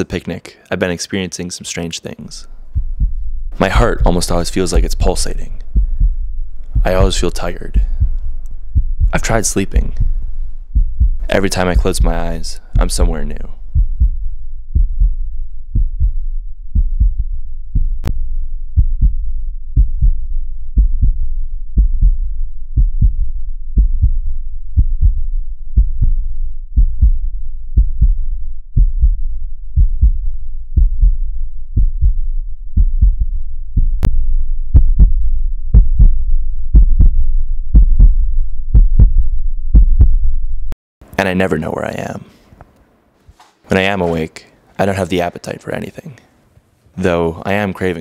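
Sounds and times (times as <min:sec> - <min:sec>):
heartbeat thumps: 0:02.4 - 0:40.4.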